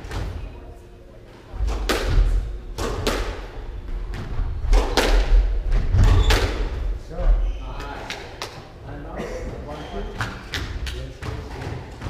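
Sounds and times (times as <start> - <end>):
squash ball cracking off walls: 1.6 - 3.5, 4.1 - 6.7.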